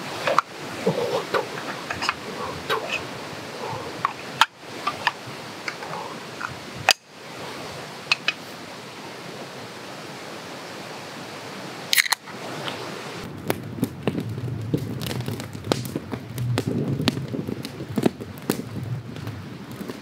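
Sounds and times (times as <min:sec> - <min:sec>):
outdoor background hiss: 0:00.0 - 0:20.0
sharp snaps and crackles: 0:11.9 - 0:20.0.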